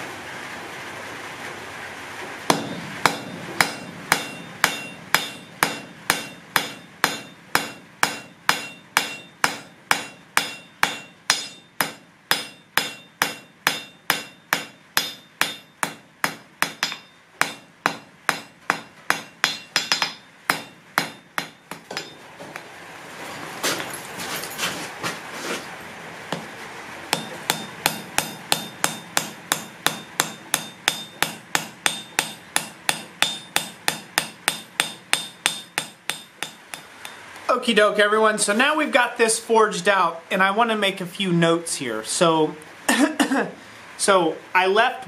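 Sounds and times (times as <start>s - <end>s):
hammer striking metal on anvil: 2.5s - 22.2s, 27.1s - 37.3s.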